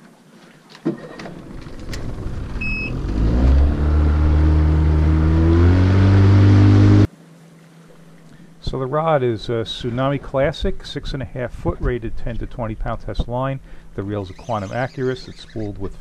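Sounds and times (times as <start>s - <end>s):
outboard motor revving: 1.3s - 7.1s.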